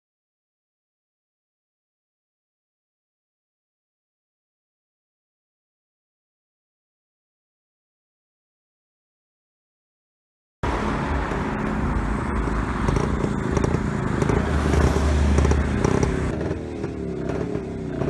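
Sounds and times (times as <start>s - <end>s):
motorcycle engine passing: 12.7s - 18.0s.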